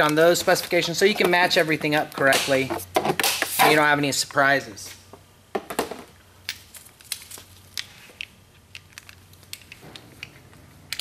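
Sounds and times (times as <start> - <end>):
tool handling clicks: 7.8 - 11.0.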